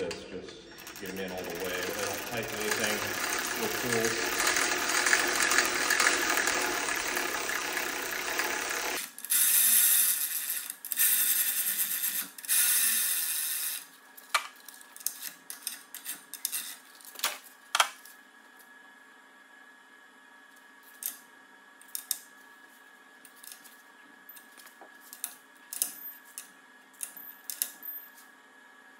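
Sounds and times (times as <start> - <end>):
electric ratchet whirring: 0.8 - 13.9, 15.0 - 16.8
ratchet clicks: 0.8 - 13.9.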